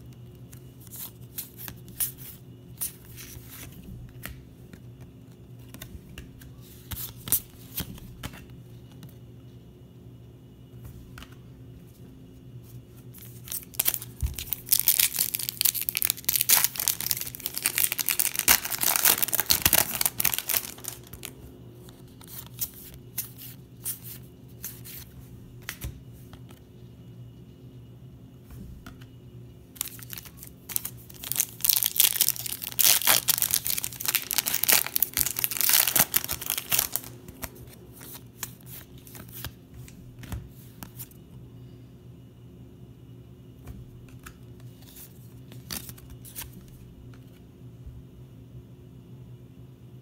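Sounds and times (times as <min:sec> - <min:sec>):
wrapper crinkling and tearing: 0:13.4 - 0:21.3, 0:29.8 - 0:38.2.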